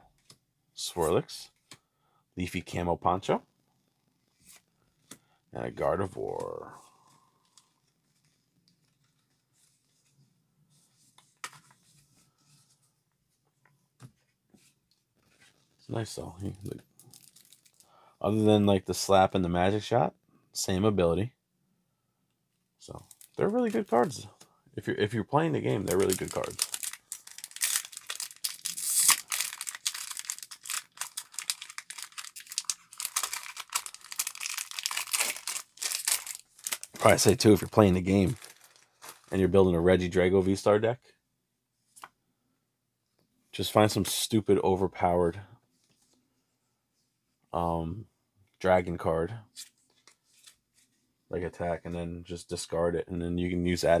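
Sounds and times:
cards sliding and rustling: 8.1s - 12.9s, 25.6s - 34.3s, 49.6s - 51.0s
foil wrapper crinkling and tearing: 17.0s - 17.8s, 25.6s - 39.4s.

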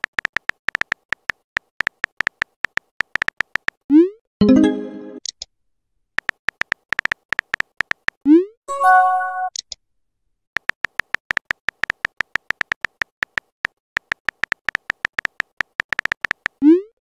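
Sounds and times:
phone keyboard taps: 0.0s - 3.8s, 6.2s - 8.2s, 10.6s - 16.6s
chat message tone: 8.7s - 9.5s.

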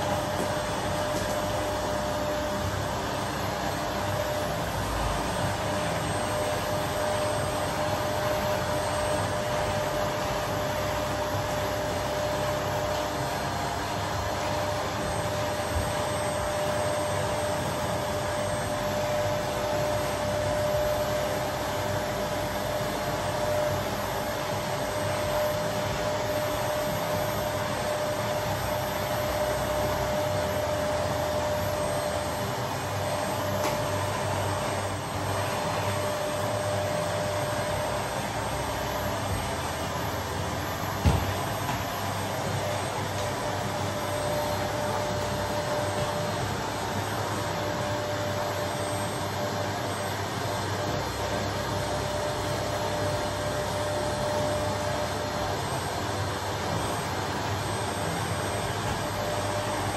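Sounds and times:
vacuum cleaner running: 0.0s - 59.9s.

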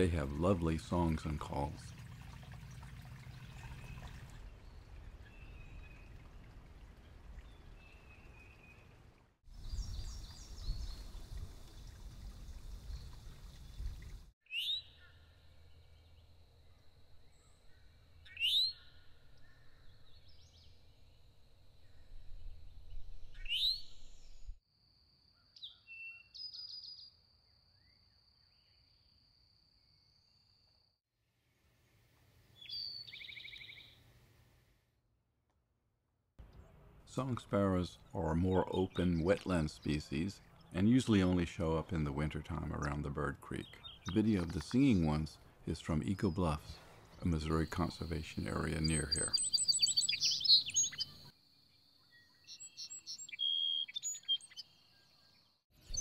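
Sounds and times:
bird song with fast trill: 9.6s - 24.5s, 25.4s - 29.1s, 32.5s - 34.0s, 43.5s - 45.2s, 46.2s - 56.0s.

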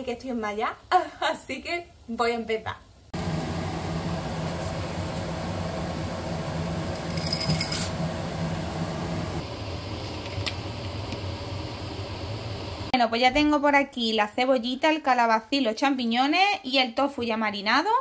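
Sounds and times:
water boiling in a saucepan: 3.1s - 13.0s
glassy clink: 7.0s - 8.0s.

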